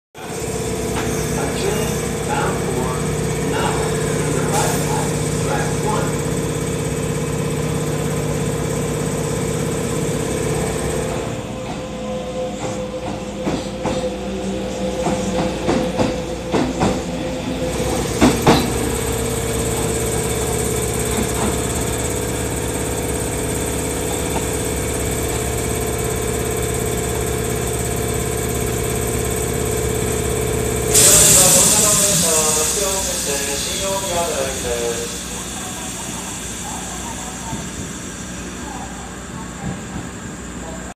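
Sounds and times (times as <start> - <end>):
electric train passing: 0.2 - 40.9
train wheels clacking over rail joints: 0.4 - 11.8, 17.9 - 35.3.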